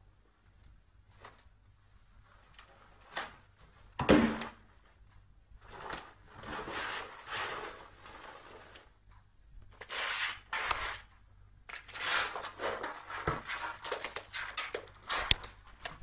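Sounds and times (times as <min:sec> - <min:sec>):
cardboard box scraping on floor: 0:05.7 - 0:08.9, 0:09.8 - 0:11.0, 0:11.9 - 0:14.0.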